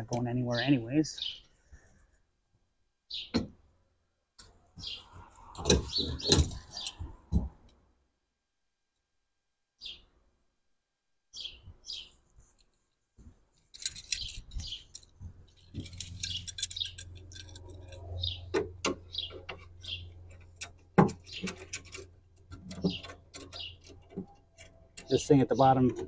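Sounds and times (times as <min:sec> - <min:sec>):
metal hardware clinking: 0:13.6 - 0:18.1.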